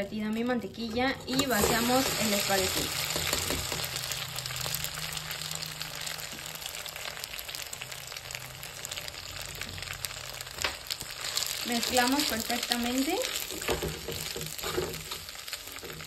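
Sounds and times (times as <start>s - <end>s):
butter sizzling in a pot: 0.1s - 16.0s.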